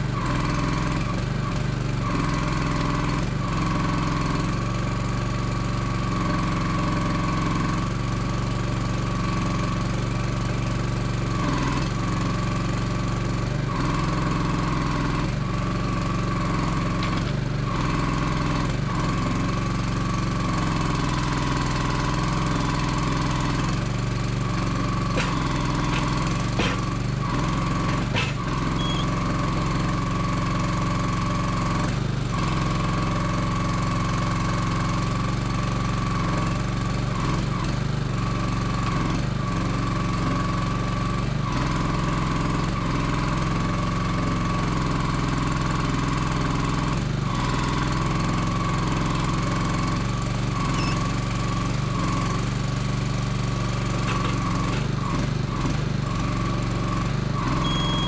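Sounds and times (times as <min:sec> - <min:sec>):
small engine running: 0:00.0 - 0:58.0
crane knocks: 0:25.0 - 0:27.0.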